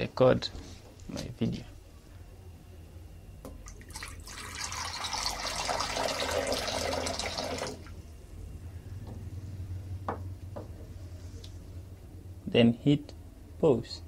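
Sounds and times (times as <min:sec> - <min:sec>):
water pouring into glass bowl: 0:03.7 - 0:07.9.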